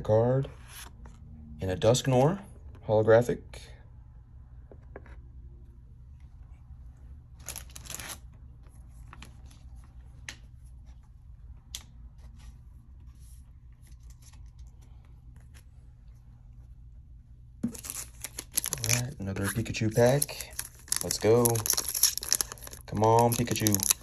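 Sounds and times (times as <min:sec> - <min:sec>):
low steady hum: 0:00.0 - 0:24.0
trading cards rustling and tapping: 0:17.6 - 0:24.0.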